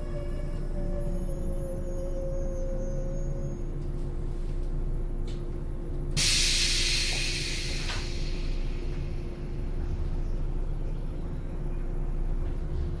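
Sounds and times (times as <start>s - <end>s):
electric train idling hum: 0.0s - 13.0s
compressed air hiss: 6.2s - 8.8s.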